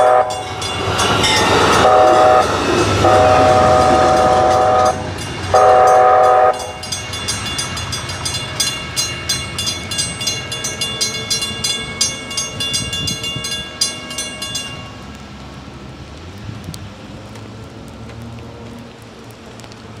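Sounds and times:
train horn chord: 0.0 - 0.5, 1.7 - 6.9
crossing bells ringing: 0.0 - 15.2.

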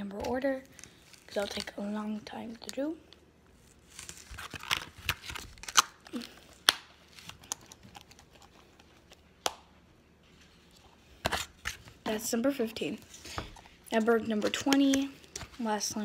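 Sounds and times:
plastic tubs clicking and crinkling: 13.2 - 16.0.

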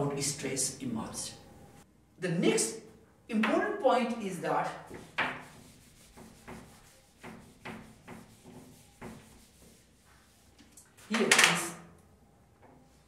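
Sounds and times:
eraser rubbing a whiteboard: 4.6 - 11.4.

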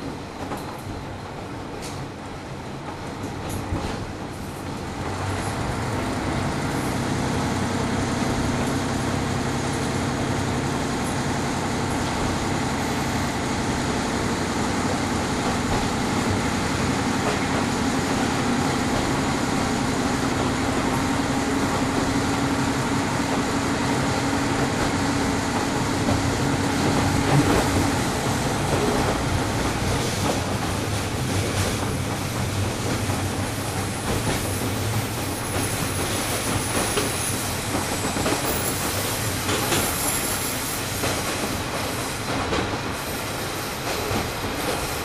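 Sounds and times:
train rumbling on rails: 0.0 - 45.0.

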